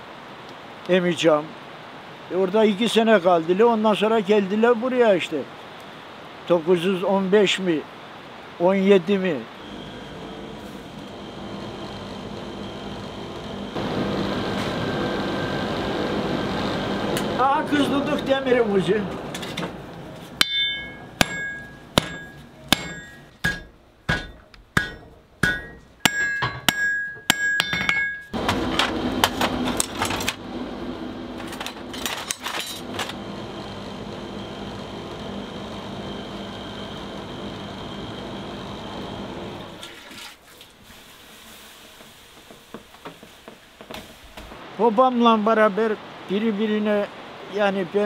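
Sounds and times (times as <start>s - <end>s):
low hum: 9.6s - 18.3s
hammer ringing on anvil: 20.4s - 28.4s.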